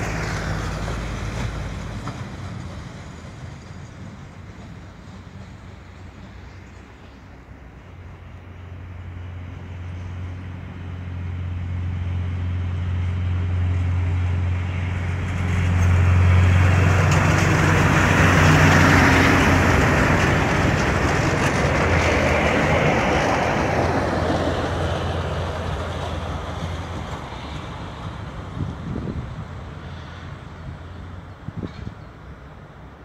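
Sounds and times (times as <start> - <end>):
rail vehicle engine hum: 0.0 - 33.0
wheels running on rails: 13.1 - 29.0.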